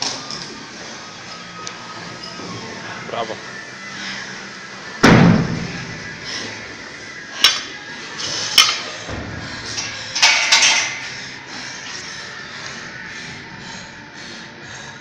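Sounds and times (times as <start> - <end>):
metal plates clanking on barbell: 10.2 - 11.0.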